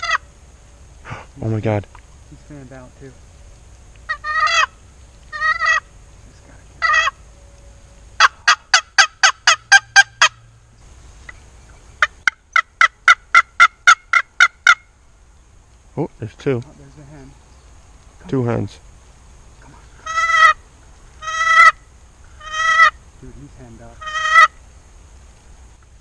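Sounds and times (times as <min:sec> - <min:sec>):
turkey yelping: 0:00.0 - 0:00.3, 0:04.1 - 0:05.9, 0:06.8 - 0:07.2, 0:08.2 - 0:10.5, 0:12.0 - 0:14.9, 0:19.9 - 0:23.0, 0:24.0 - 0:24.6.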